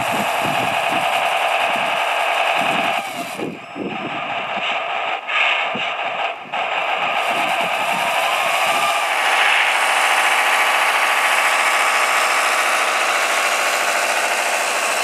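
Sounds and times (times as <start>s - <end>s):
model truck motor whining: 0.0s - 15.0s.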